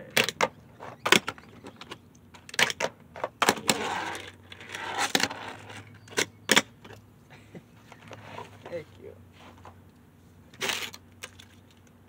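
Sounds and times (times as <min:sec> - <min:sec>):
fingerboard wheels rolling: 0:00.2 - 0:07.0.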